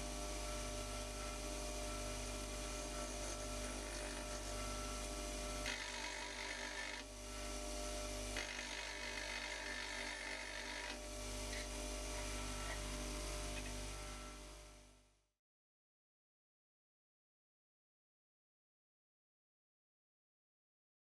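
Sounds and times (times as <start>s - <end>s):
grinding hiss: 0.0s - 14.4s
bench grinder motor hum: 0.0s - 14.8s.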